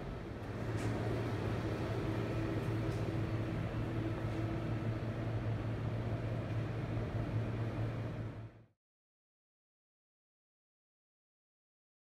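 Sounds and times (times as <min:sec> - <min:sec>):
subway station hum and rumble: 0:00.0 - 0:08.7.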